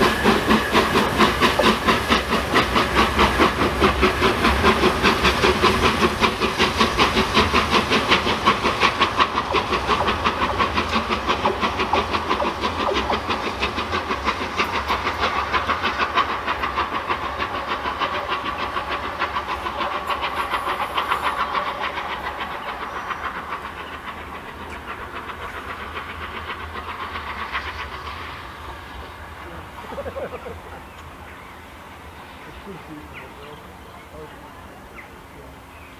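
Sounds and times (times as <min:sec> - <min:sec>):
steam locomotive exhaust beats: 0:00.0 - 0:35.9.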